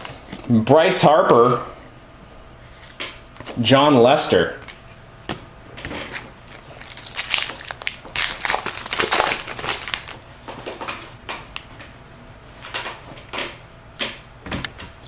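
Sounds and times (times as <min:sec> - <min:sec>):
foil wrapper crinkling: 0:06.0 - 0:10.2.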